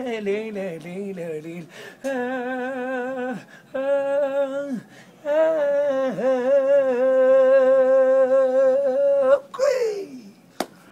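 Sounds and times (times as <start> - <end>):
man singing long note: 2.0 - 10.2.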